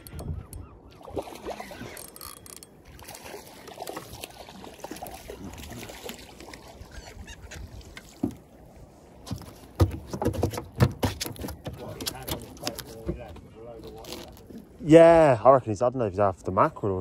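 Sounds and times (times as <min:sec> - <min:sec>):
seagulls calling: 0:00.0 - 0:02.0, 0:06.7 - 0:08.2
knocks on a boat: 0:09.3 - 0:11.9.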